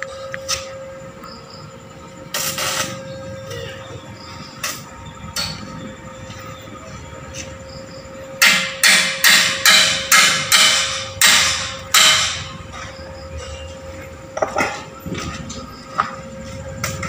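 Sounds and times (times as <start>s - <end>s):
hammer striking steel bar: 8.4s - 12.5s.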